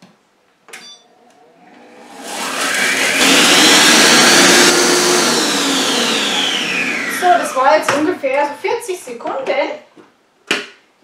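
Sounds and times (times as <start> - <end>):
food processor motor whine: 1.3 - 8.6.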